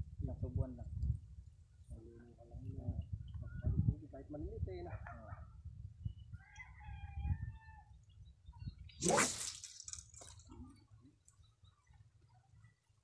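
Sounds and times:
rooster crowing: 6.4 - 7.9
fishing rod cast swish: 9.0 - 10.2.

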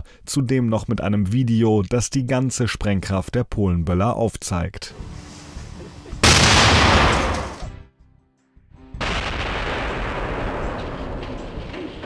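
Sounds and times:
firecracker blast: 6.2 - 7.7, 9.0 - 12.0.

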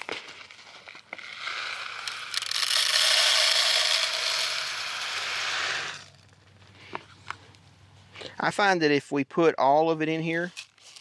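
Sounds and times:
seeds pouring onto plastic: 0.0 - 6.3.

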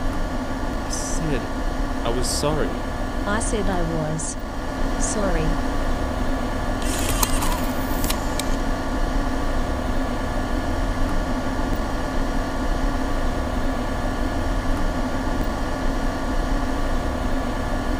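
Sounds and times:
laptop cooling fan whirring: 0.0 - 17.9
click: 6.8 - 8.6.

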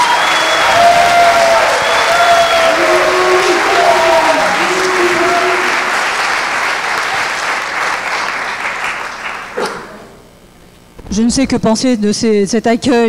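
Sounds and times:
audience applauding: 0.0 - 10.2
voices calling out: 0.2 - 7.0.

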